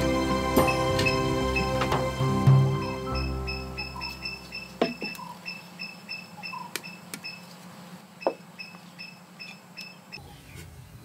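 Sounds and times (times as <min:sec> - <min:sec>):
short high-pitched chirps: 0:02.8 - 0:07.4.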